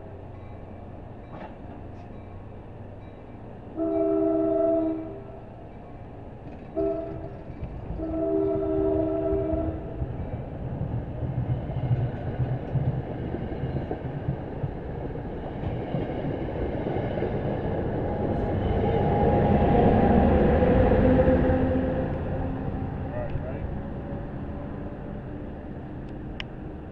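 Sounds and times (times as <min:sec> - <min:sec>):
train rumble and wheel noise: 0:00.0 - 0:26.9
train horn chord: 0:03.7 - 0:05.6, 0:06.7 - 0:10.0, 0:18.3 - 0:23.4.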